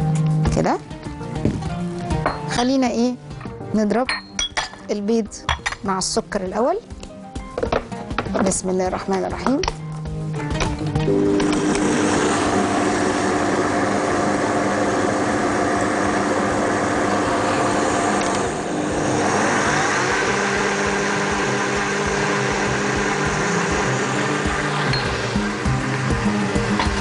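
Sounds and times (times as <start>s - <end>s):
blender running: 11.1s - 27.0s.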